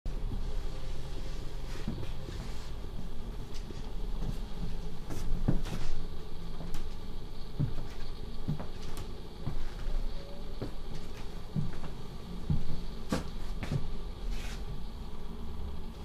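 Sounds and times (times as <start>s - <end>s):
low steady hum: 0.1s - 16.0s
footsteps thumping: 3.6s - 6.0s, 7.6s - 10.0s, 10.6s - 14.7s.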